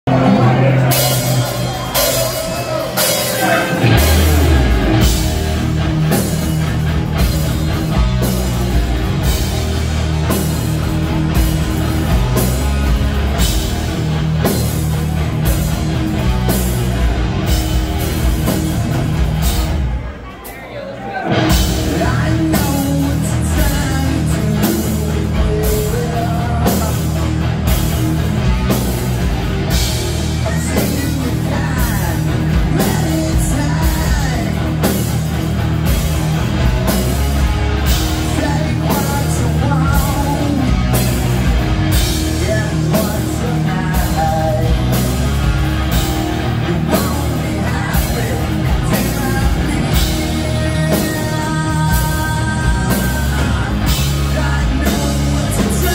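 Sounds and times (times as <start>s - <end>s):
electric guitars: 0.0s - 55.9s
live rock band playing: 0.0s - 55.9s
person singing: 0.1s - 5.4s, 21.3s - 27.3s, 30.3s - 34.9s, 38.1s - 41.1s, 41.9s - 45.3s, 46.5s - 55.9s
steady drum beat: 0.1s - 20.2s, 21.3s - 55.9s.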